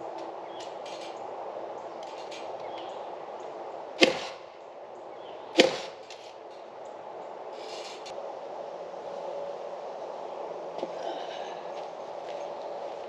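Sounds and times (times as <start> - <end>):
nails hammered into wood: 4.0 - 4.4, 5.6 - 6.2.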